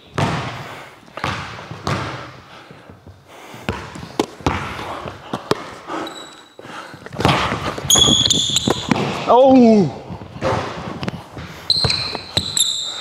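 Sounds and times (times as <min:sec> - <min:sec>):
basketball bouncing on hardwood: 0:00.1 - 0:00.6, 0:01.2 - 0:02.3, 0:03.7 - 0:05.7, 0:07.1 - 0:09.2, 0:10.4 - 0:12.6.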